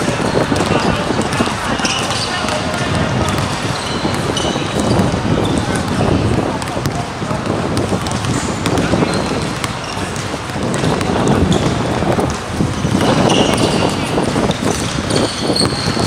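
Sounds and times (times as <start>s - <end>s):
basketball bouncing: 0.0s - 16.0s
players' footsteps: 0.0s - 16.0s
sneaker squeaks: 0.0s - 16.0s.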